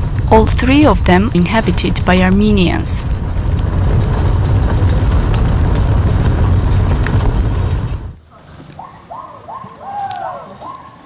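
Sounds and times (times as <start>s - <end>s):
knocks and rattles: 3.0s - 8.2s
car driving on dirt road: 3.0s - 8.3s.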